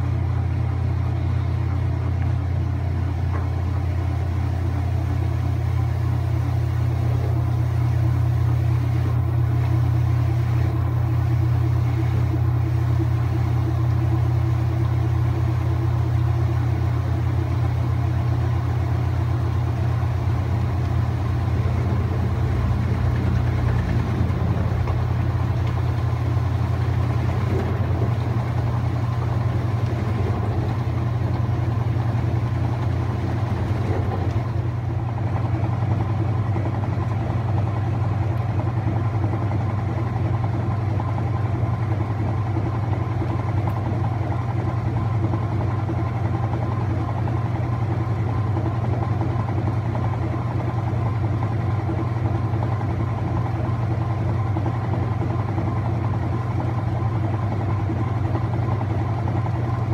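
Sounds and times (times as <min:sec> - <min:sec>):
washing machine spinning: 0:00.0 - 0:59.9.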